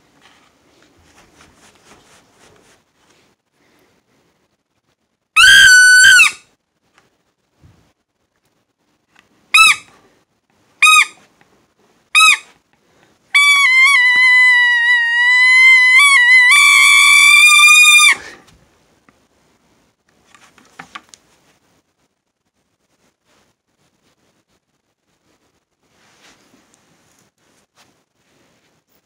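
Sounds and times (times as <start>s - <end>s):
faint rustles: 0.0s - 5.2s, 18.2s - 29.0s.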